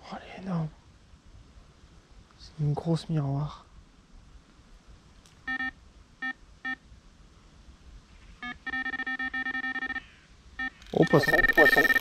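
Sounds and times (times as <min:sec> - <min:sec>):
electronic alarm beeping: 0:05.5 - 0:06.8, 0:08.4 - 0:10.0, 0:10.6 - 0:12.0.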